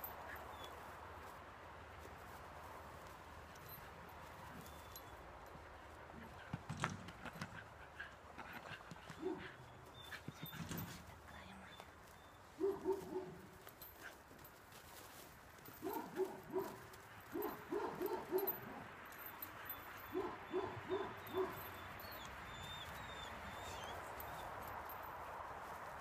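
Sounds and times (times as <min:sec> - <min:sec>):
puppy whining yips: 0:20.0 - 0:24.4.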